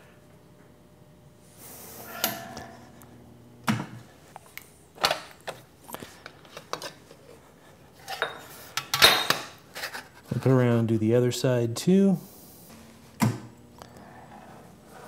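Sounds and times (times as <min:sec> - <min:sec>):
metal sliding scrape: 0:01.6 - 0:03.0.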